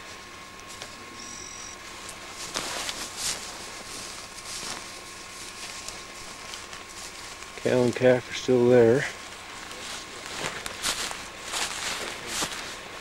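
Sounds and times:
steady hiss: 0.0s - 13.0s
high whistle-like tone: 1.2s - 1.8s
clothing brushing through branches: 1.9s - 7.6s, 9.2s - 13.0s
footsteps through shrubs: 1.9s - 13.0s.

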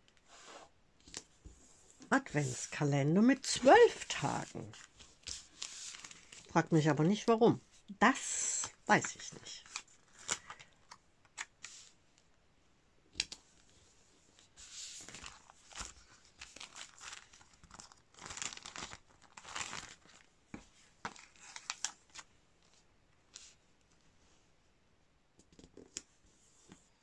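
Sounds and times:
paper bags rustling and crinkling: 3.4s - 6.5s, 14.6s - 22.8s.

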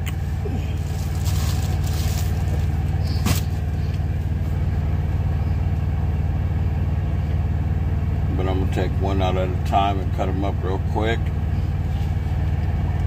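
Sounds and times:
diesel engine idling: 0.0s - 13.0s
handling noise: 0.8s - 4.0s.

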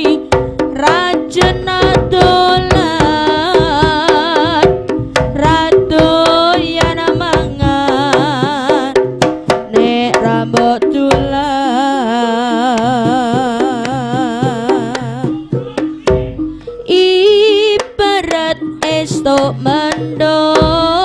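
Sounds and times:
sharp hand drum strokes: 0.0s - 21.0s
wavering melody: 9.8s - 21.0s.

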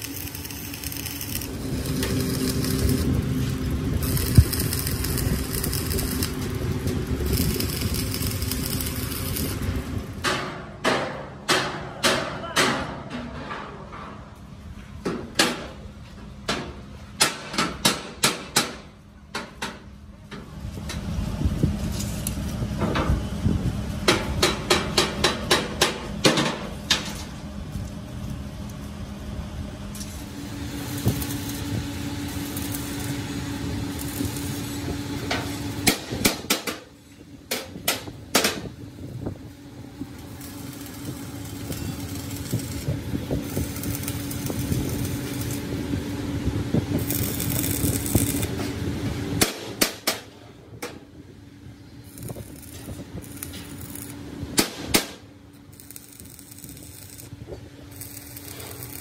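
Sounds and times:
workshop hum: 0.0s - 59.0s
hammer striking steel: 10.2s - 13.0s.

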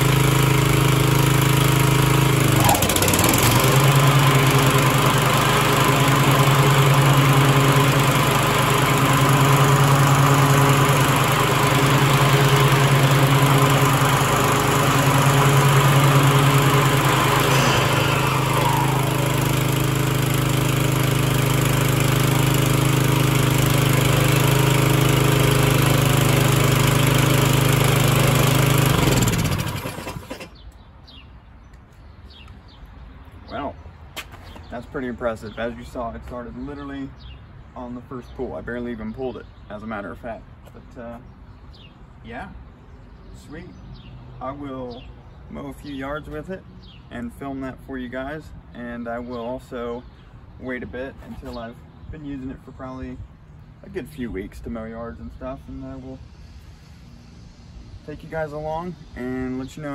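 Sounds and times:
lawn mower engine running: 0.0s - 30.6s.

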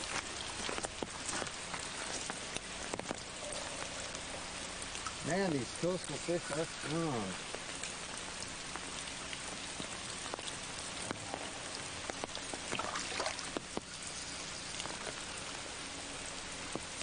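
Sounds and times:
steady rain pattering: 0.0s - 17.0s.

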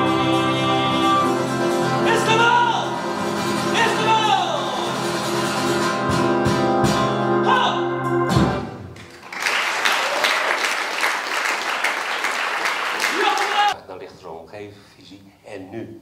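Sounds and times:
man singing: 0.0s - 3.1s
guitar strumming: 0.0s - 8.8s
audience applauding: 9.0s - 13.8s.

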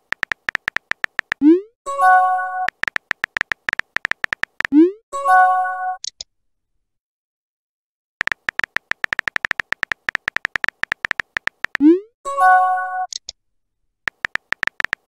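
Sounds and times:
phone keyboard typing clicks: 0.0s - 1.4s, 2.7s - 4.8s, 8.2s - 11.8s, 14.1s - 15.0s.

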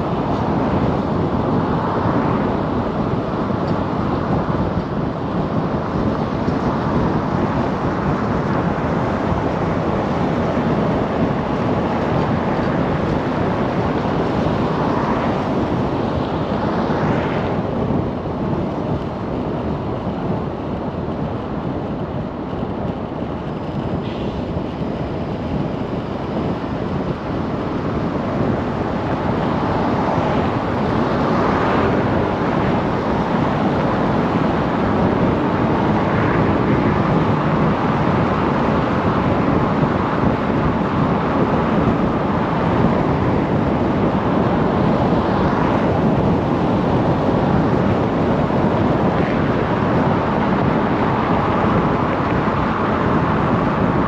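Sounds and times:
car road and tyre noise: 0.0s - 54.0s.

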